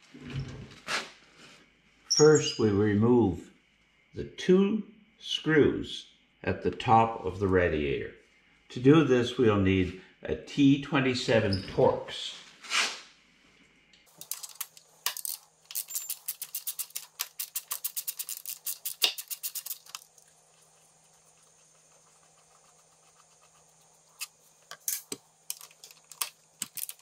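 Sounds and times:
ratchet clicking: 0:14.2 - 0:20.1.

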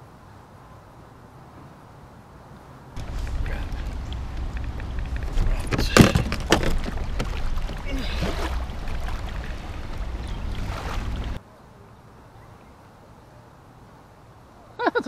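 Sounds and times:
sharp knocks: 0:04.5 - 0:07.8.

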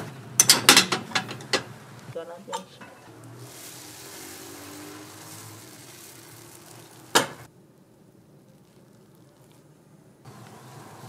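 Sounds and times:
batter sizzling in iron molds: 0:02.9 - 0:11.0.

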